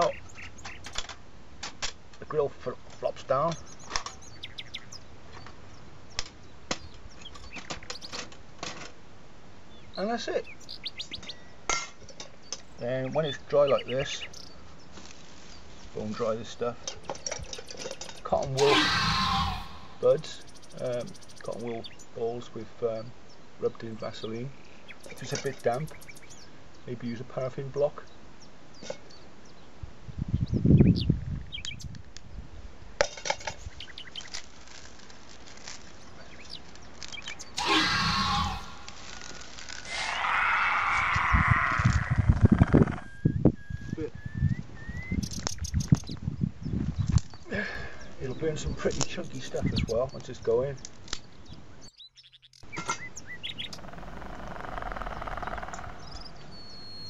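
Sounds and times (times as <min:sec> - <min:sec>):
steady rustling hiss: 0:00.0 - 0:18.6, 0:31.8 - 0:37.6, 0:38.6 - 0:40.0
small birds chirping: 0:00.0 - 0:32.6, 0:33.3 - 0:57.0
twigs snapping and rustling: 0:33.2 - 0:37.6, 0:38.4 - 0:39.9, 0:50.2 - 0:51.3
low rumble: 0:53.7 - 0:57.0.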